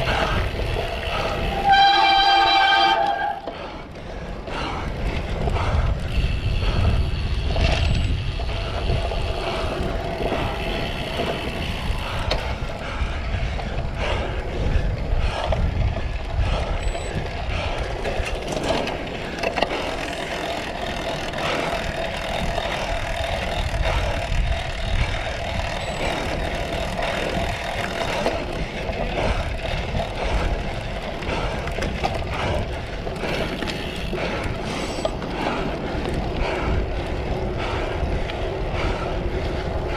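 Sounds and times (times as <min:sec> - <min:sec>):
bike rattling over rough ground: 0:00.0 - 0:39.9
bike tyre noise: 0:00.0 - 0:39.9
wind rushing over microphone: 0:00.0 - 0:39.9.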